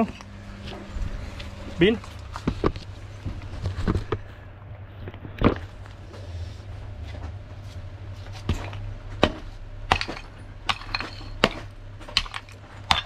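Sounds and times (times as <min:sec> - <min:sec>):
hammer smashing clay pipe: 0:08.5 - 0:13.0.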